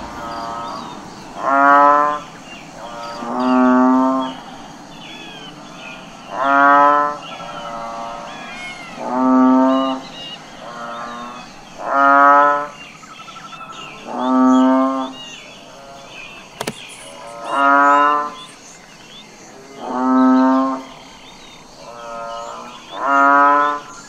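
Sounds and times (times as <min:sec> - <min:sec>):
faint high chirping: 0:12.9 - 0:23.1.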